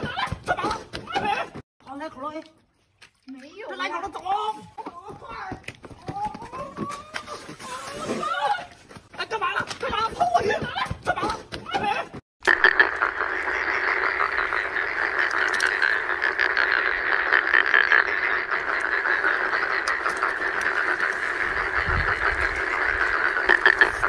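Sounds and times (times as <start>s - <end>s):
frogs croaking: 12.4s - 24.0s.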